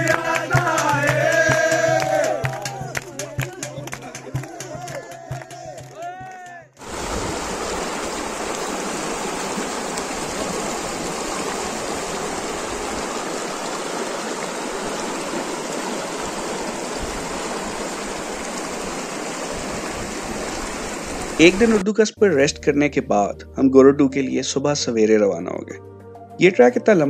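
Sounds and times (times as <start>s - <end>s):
stream rushing over rocks: 6.8s - 21.8s.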